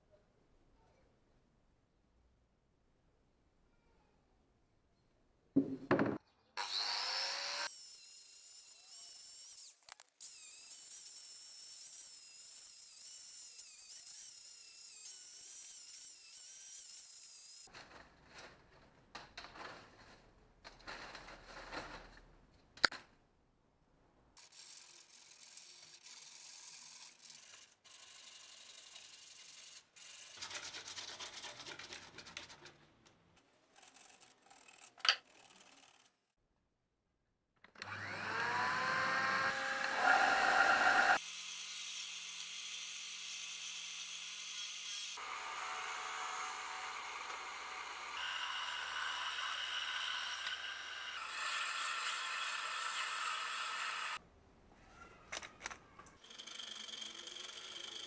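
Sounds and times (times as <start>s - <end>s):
sander motor whining: 37.8s - 41.2s
angle grinder grinding steel: 37.8s - 54.2s, 56.2s - 58.0s.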